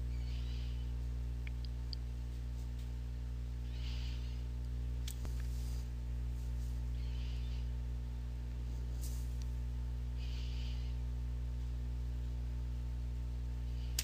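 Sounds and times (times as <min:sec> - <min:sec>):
low electrical hum: 0:00.0 - 0:14.0
soft hiss: 0:08.6 - 0:11.7.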